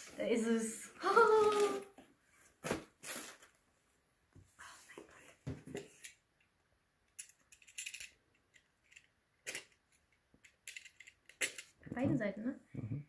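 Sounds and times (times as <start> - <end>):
packaging rustling and scraping: 1.1 - 3.6.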